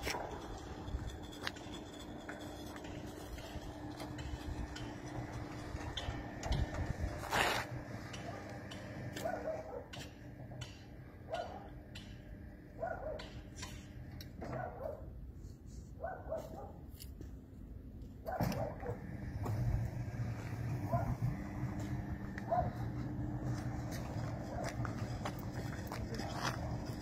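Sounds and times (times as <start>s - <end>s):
gate motor humming: 0.0s - 14.8s, 18.3s - 27.0s
dog barking: 9.2s - 10.0s, 11.3s - 11.8s, 12.8s - 13.4s, 14.4s - 15.1s, 16.0s - 16.8s, 18.2s - 19.0s, 20.9s - 21.2s, 22.4s - 22.8s.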